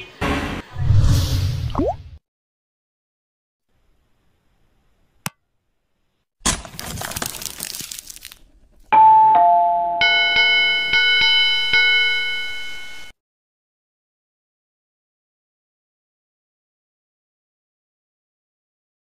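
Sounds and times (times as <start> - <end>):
electronic doorbell chime: 9.0 - 13.1
ringing chime chord: 9.0 - 13.1.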